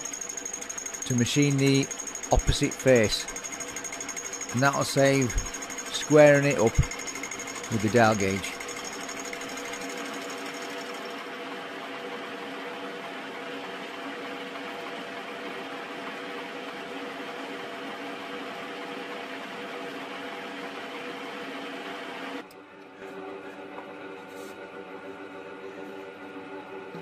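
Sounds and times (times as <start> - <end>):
cutter cutting cast iron: 0.0 - 9.5
milling machine hum: 0.0 - 20.8.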